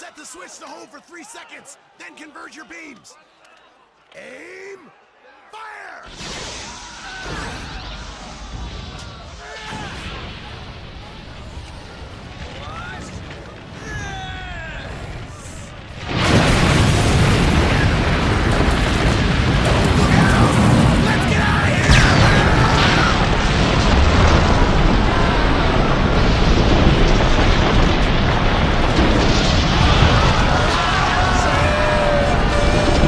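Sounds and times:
rumble of crashing debris: 0:07.6 - 0:33.0
explosive boom: 0:15.0 - 0:33.0
voices crying out: 0:29.9 - 0:33.0.

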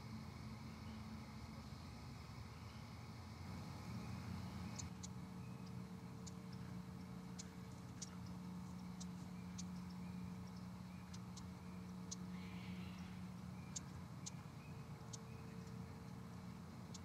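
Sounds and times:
steady low hum: 0:00.0 - 0:17.0
sharp high-pitched ticks: 0:04.7 - 0:12.4, 0:13.0 - 0:17.0.

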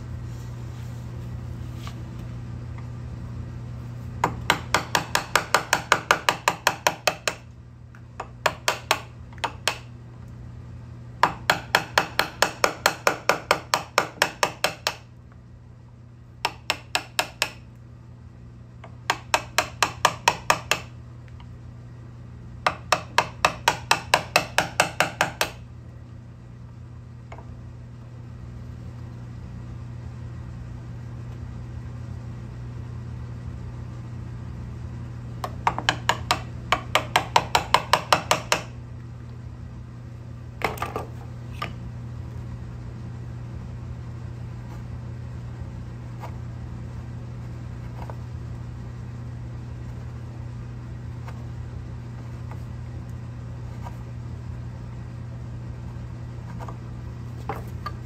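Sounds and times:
steady low hum: 0:00.0 - 0:58.0
chisel tapping into wood: 0:04.2 - 0:07.5, 0:08.2 - 0:09.9, 0:11.2 - 0:15.1, 0:16.4 - 0:17.6, 0:18.8 - 0:20.9, 0:22.6 - 0:25.6, 0:35.4 - 0:38.8, 0:40.6 - 0:41.8, 0:57.4 - 0:58.0.

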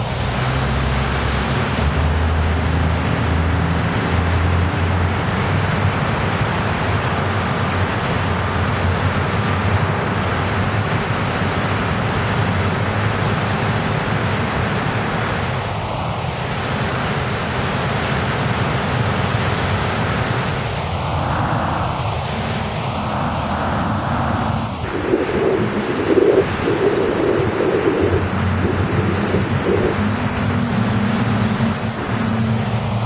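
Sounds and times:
tyres hissing on wet road: 0:00.0 - 0:33.0
low engine rumble: 0:18.1 - 0:33.0.

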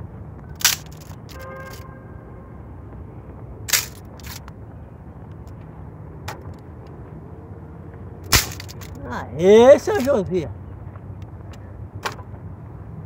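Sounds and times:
steady low rumble: 0:00.0 - 0:09.4
dry branches snapping: 0:08.2 - 0:09.0.

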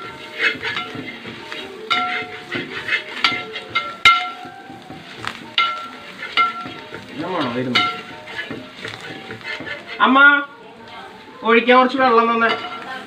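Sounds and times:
spatula clanking in metal pot: 0:00.0 - 0:10.2, 0:12.1 - 0:13.0
curry sizzling in oil: 0:00.0 - 0:13.0.

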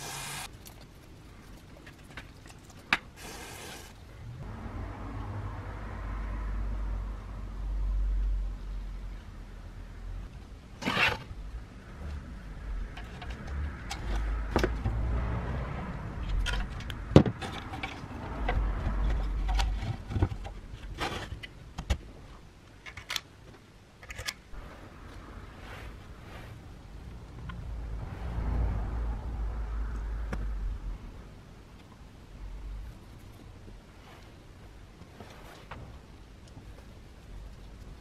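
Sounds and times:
plastic and metal parts clicking: 0:24.0 - 0:24.5
low background rumble: 0:24.5 - 0:38.0.

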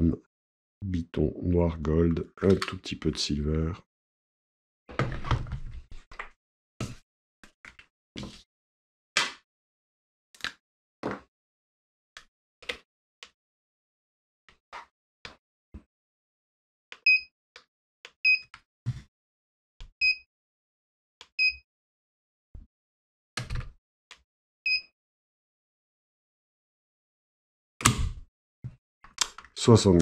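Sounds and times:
clicks and knocks of handling: 0:29.1 - 0:29.6.

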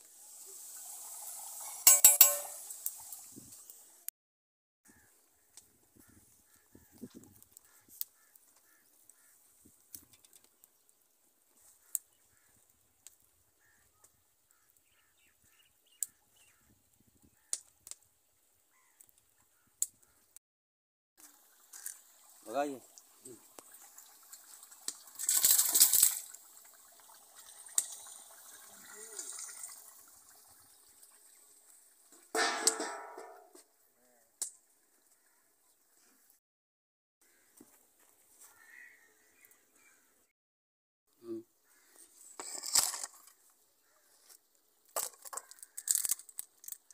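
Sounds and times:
ladle clanging on metal pot: 0:01.9 - 0:02.6, 0:32.4 - 0:33.5
faint fowl calls: 0:04.9 - 0:09.5, 0:13.5 - 0:17.7, 0:37.2 - 0:40.3, 0:41.2 - 0:42.2.

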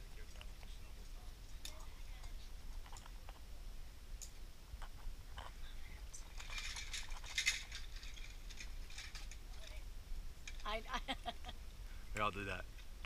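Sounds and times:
low steady rumble: 0:00.0 - 0:13.0
metal gear clinking and jangling: 0:06.2 - 0:09.8.

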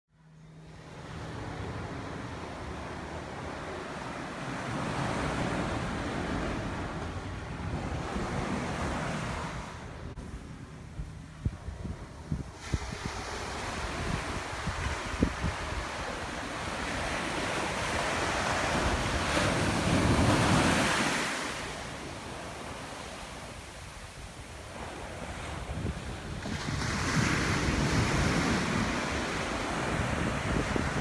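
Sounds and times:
wind rumble on microphone: 0:00.7 - 0:31.0
waves washing up beach: 0:12.4 - 0:31.0.

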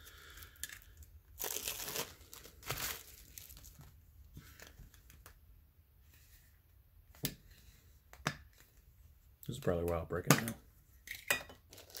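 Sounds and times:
plastic seal crinkling: 0:00.6 - 0:03.9, 0:11.7 - 0:12.0.

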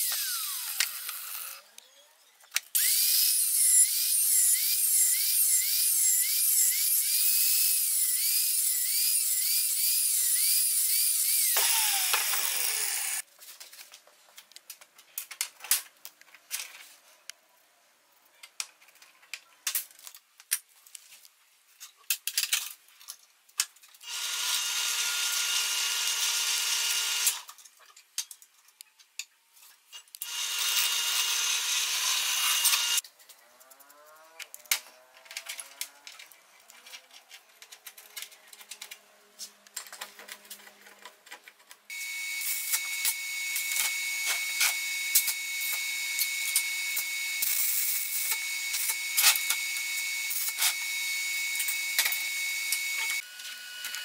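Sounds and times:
angle grinder cutting iron plate: 0:00.0 - 0:01.6, 0:02.8 - 0:13.2, 0:30.2 - 0:33.0, 0:41.9 - 0:54.0
grinder spinning down whine: 0:00.0 - 0:01.6, 0:11.4 - 0:13.2, 0:48.2 - 0:54.0
power tool bursts: 0:11.4 - 0:13.2.

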